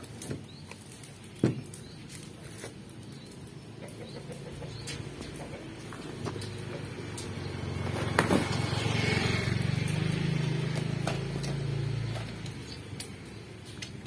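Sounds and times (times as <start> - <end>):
vehicle engine passing: 3.4 - 14.0.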